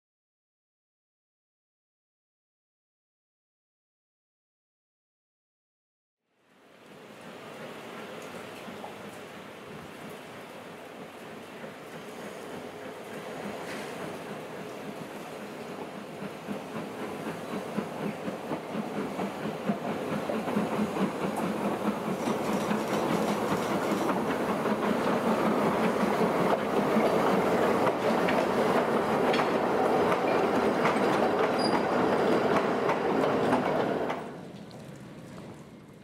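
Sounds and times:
steam train rolling past: 6.5 - 36.0
wheels clacking over rail joints: 12.6 - 36.0.

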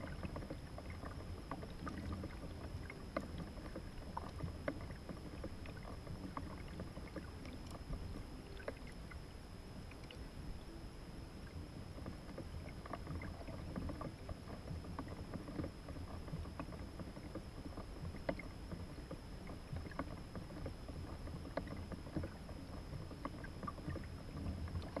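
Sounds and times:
thin high whine: 0.0 - 14.8
water rumbling against kayak hull: 0.0 - 25.0.

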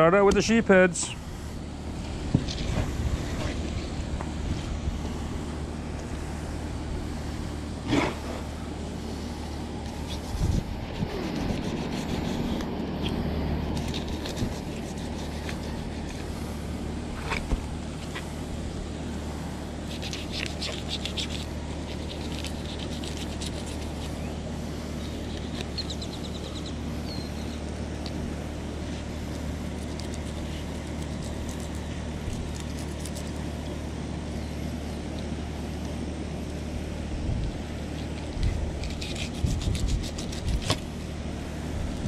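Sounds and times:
low mechanical hum: 0.0 - 42.0
knife scraping on wooden board: 9.9 - 16.3, 19.9 - 24.2, 38.7 - 40.9.

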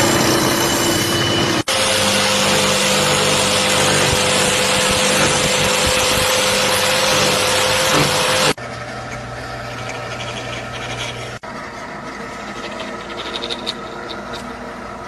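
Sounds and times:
power tool rushing noise: 1.6 - 8.6.

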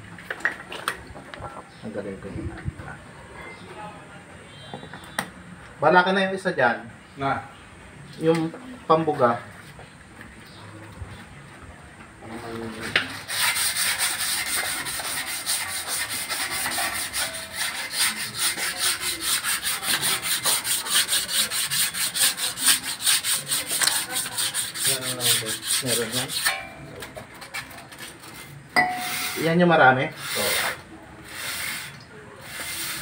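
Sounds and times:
sandpaper scrubbing metal: 13.1 - 26.7, 27.4 - 33.0.

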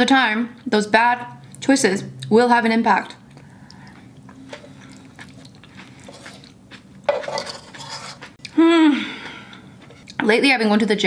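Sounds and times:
wooden utensils scraping a pan: 6.0 - 6.4, 7.1 - 8.4.

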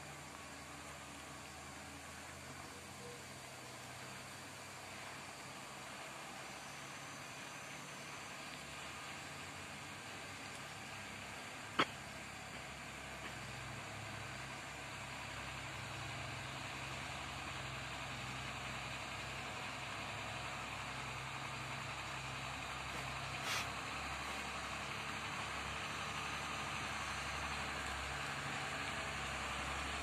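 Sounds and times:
truck diesel engines running: 0.0 - 30.0
even hiss: 19.6 - 30.0
brief hiss: 22.9 - 23.9.

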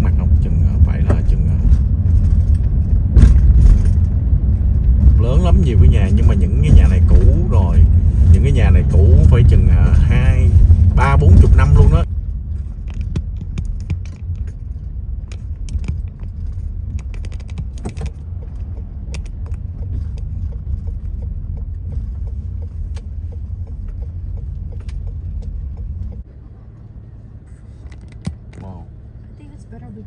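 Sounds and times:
car road noise rumble: 0.0 - 30.0
small clicks and rattles: 12.5 - 26.2.

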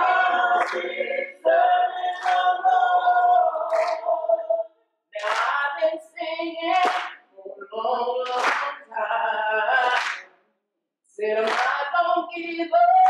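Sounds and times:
choir singing a cappella: 0.0 - 10.3, 11.2 - 13.0
hand claps: 0.4 - 1.1, 2.1 - 2.7, 3.7 - 4.1, 5.2 - 5.7, 6.7 - 7.3, 8.2 - 8.8, 9.8 - 10.4, 11.4 - 12.0.

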